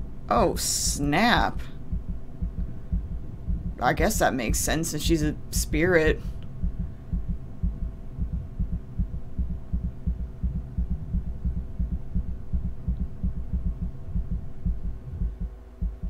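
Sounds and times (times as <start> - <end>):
faint steady tones: 0.0 - 16.0
ominous low drone music: 1.6 - 3.9, 6.2 - 16.0.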